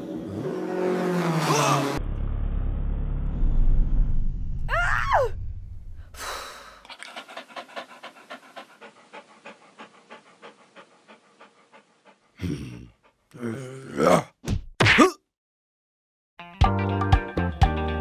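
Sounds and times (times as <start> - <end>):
low rumble: 2.0 - 6.2
rapid panting: 6.6 - 13.4.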